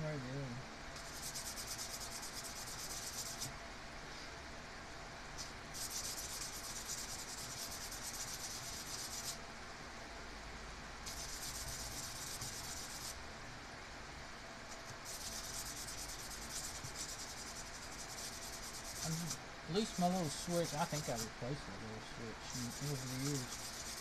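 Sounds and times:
fast abrasive scrubbing on metal: 1.0s - 3.5s, 5.8s - 9.4s, 11.1s - 13.2s, 15.0s - 21.3s, 22.4s - 24.0s.

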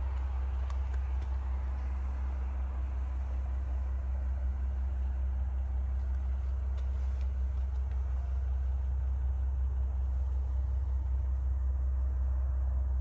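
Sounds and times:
faint light ticks: 0.0s - 4.4s, 5.9s - 8.6s
steady low rumble: 0.0s - 13.0s.

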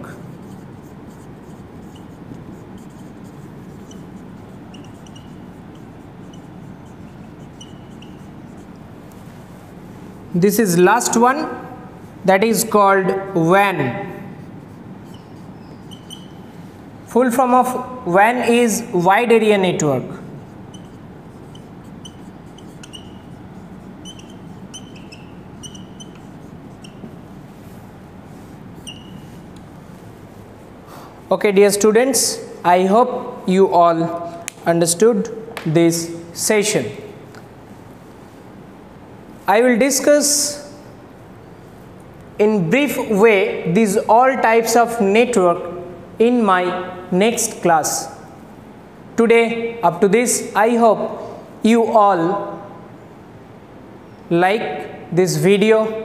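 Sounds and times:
marker squeaking on whiteboard: 0.0s - 9.8s, 13.7s - 30.6s
low room hum: 0.0s - 56.0s.

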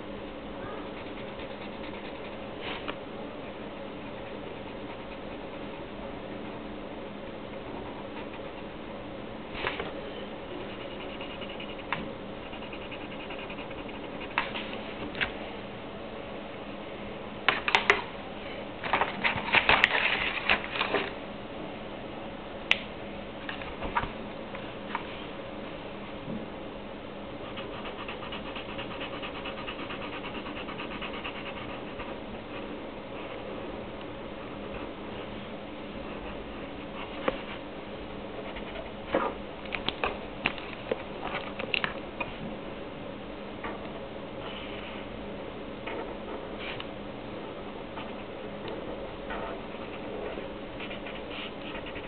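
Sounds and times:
pen scratching on paper: 0.9s - 2.4s, 10.7s - 14.5s, 27.4s - 32.1s, 50.8s - 52.0s.

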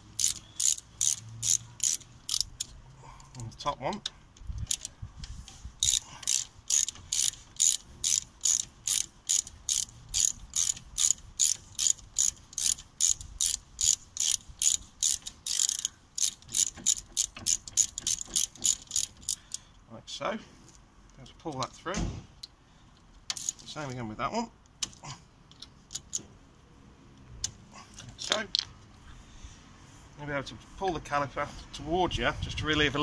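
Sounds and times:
ratcheting driver clicking: 0.0s - 19.8s, 22.4s - 23.7s, 24.6s - 26.4s.

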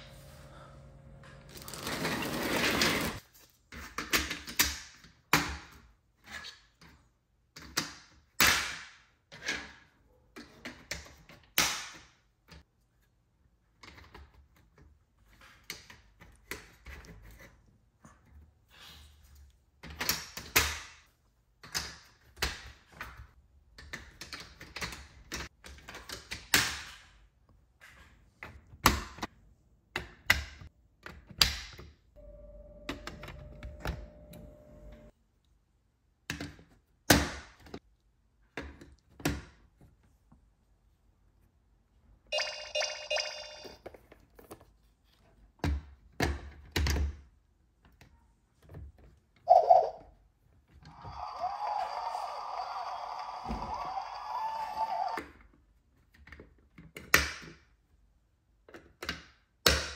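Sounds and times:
short electronic tone: 32.2s - 35.1s.

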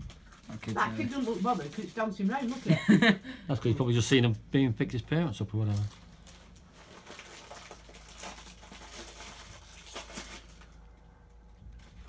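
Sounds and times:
crisps being crunched: 0.0s - 3.0s, 5.4s - 12.0s
crisp packet crinkling: 0.0s - 3.1s, 5.4s - 11.1s.

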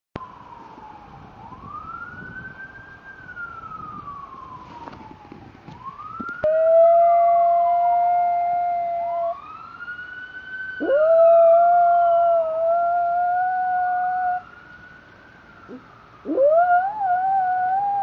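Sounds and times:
emergency siren wailing: 0.2s - 18.0s
dog howling: 6.4s - 9.4s, 10.8s - 14.4s, 16.3s - 18.0s.

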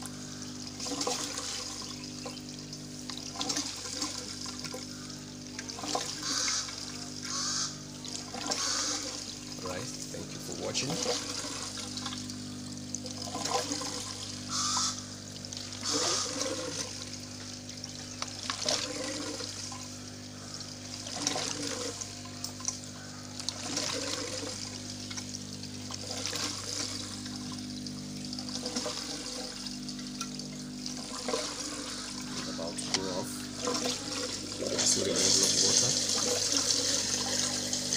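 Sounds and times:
steady low hum: 0.0s - 37.9s
water gurgling and trickling: 0.0s - 37.9s.

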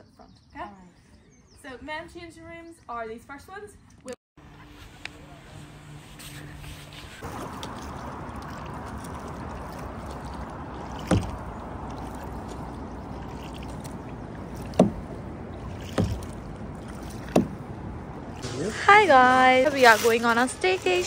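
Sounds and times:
wind: 0.0s - 21.0s
water wash: 5.0s - 21.0s
sharp knocks on kayak: 10.8s - 12.6s, 14.6s - 15.1s, 15.8s - 17.6s.

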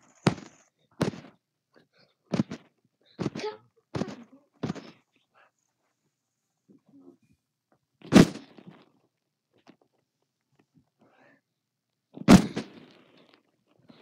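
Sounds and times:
loud thumps on device: 0.2s - 1.4s, 2.3s - 4.9s.

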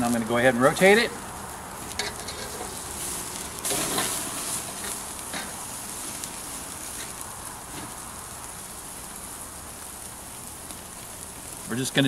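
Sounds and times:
steaks sizzling on a grill: 0.0s - 12.0s.

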